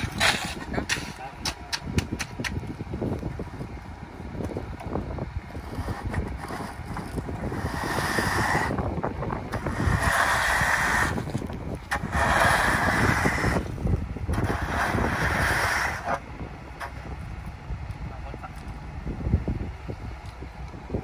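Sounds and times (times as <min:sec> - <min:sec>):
screed board scraping wet concrete: 0:00.0 - 0:02.6, 0:05.5 - 0:08.8, 0:09.5 - 0:17.1
concrete mixer truck rumbling: 0:00.0 - 0:21.0.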